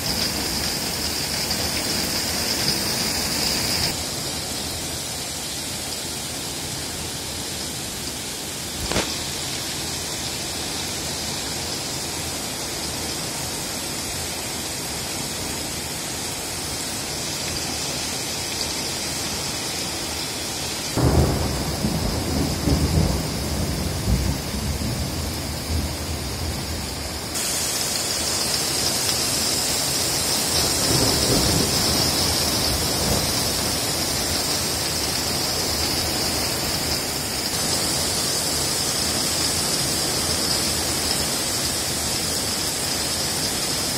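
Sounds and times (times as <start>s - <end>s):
heavy rain pouring: 0.0s - 43.9s
thunder rumbling: 21.0s - 27.0s, 30.6s - 34.2s.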